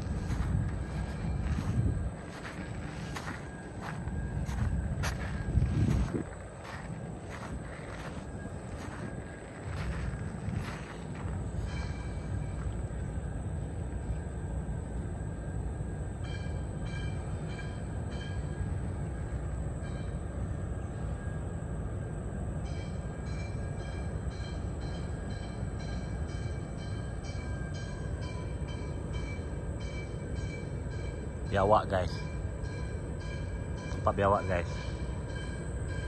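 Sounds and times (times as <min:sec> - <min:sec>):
low outdoor rumble: 0:00.0 - 0:16.2.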